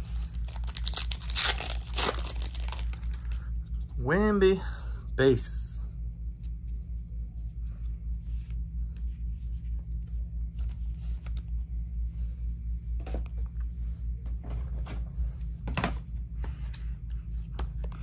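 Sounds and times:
steady low hum: 0.0 - 18.0
trading cards shuffling: 0.2 - 3.9.

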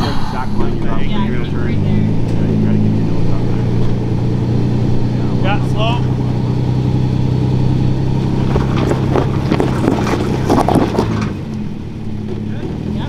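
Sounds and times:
engine droning under load: 0.0 - 13.0
tyres crunching on gravel: 5.9 - 13.0.

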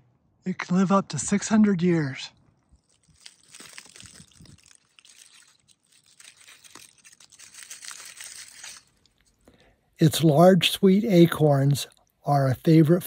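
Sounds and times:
dry crackling and crunching: 1.9 - 10.5.

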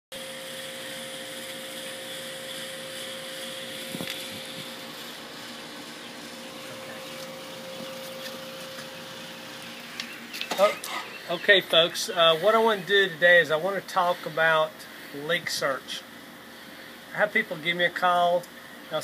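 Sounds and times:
mid-pitched hum: 0.1 - 19.0
machine whirring and hissing: 0.2 - 12.8.

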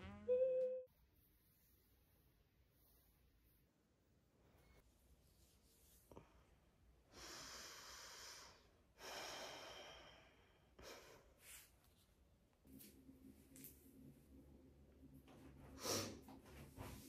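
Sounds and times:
person breathing softly: 5.9 - 11.8.

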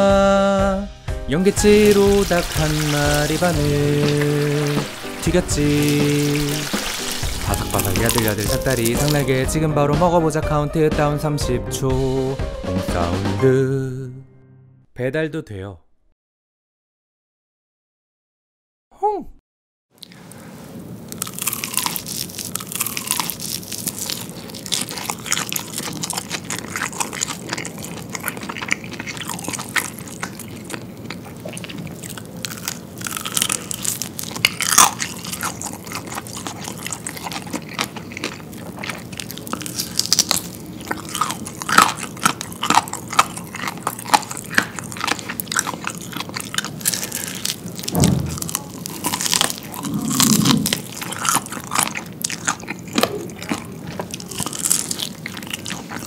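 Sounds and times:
crunching bites of fried chicken: 1.5 - 9.4, 21.1 - 56.0
chewing: 1.6 - 9.4, 21.1 - 56.0.

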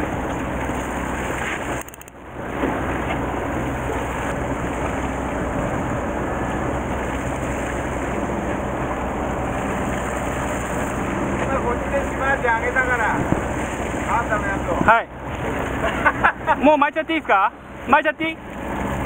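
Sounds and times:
boat engine rumble: 0.0 - 19.0
water washing along hull: 0.0 - 19.0
wind on microphone: 13.0 - 14.0.

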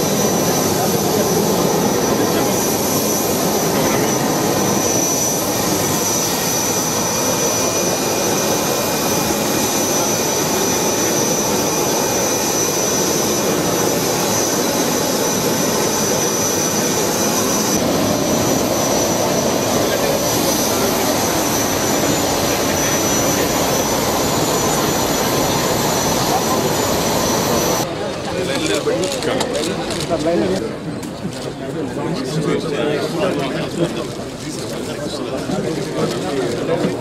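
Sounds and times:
high turbine whine: 0.0 - 28.0
jet turbines running: 0.0 - 31.8.

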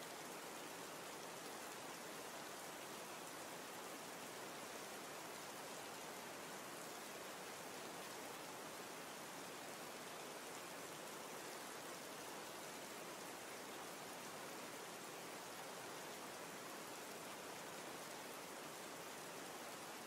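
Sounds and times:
faint steady hiss: 0.0 - 20.0.

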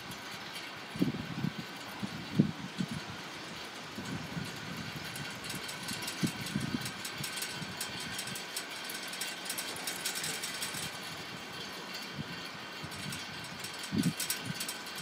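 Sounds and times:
wind buffeting microphone: 0.0 - 9.1, 9.7 - 15.0
light rapid ticking: 0.0 - 15.0.

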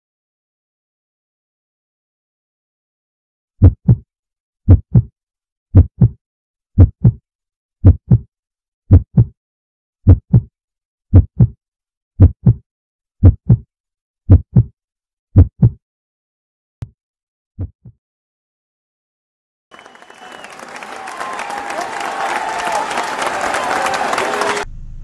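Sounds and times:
heartbeat thuds: 3.6 - 4.0, 4.7 - 5.1, 5.7 - 6.2, 6.8 - 7.2, 7.8 - 8.2, 8.9 - 9.3, 10.0 - 10.5, 11.1 - 11.6, 12.2 - 12.6, 13.2 - 13.6, 14.3 - 14.7, 15.4 - 15.8, 17.6 - 18.0.

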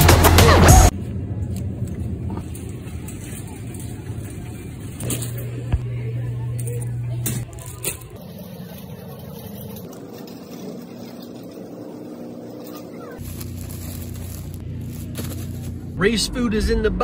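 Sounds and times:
shopping cart wheels rolling: 7.3 - 15.9.

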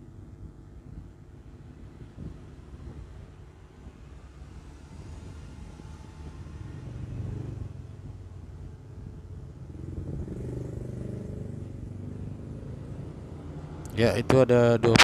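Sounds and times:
passing motor vehicles rumbling: 1.8 - 15.0.

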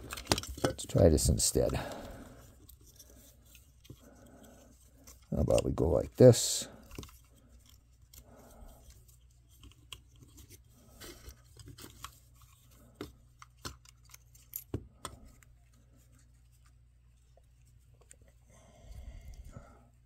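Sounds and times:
plastic parts clicking: 0.0 - 4.0, 11.2 - 15.5.

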